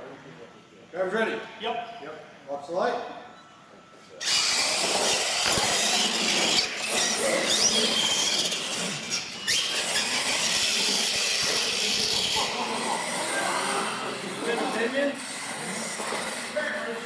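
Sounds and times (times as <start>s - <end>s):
toy truck motor whine: 4.2s - 17.0s.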